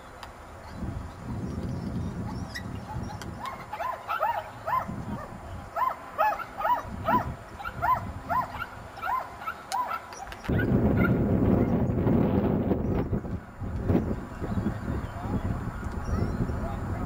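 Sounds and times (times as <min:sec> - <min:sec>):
dog yelping: 0:02.9 - 0:04.9, 0:05.8 - 0:11.2.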